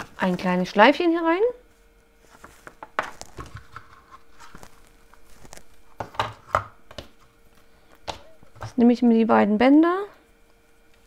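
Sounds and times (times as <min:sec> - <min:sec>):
faint hum: 0:00.0 - 0:11.0
paper and ribbon rustling: 0:02.2 - 0:05.7.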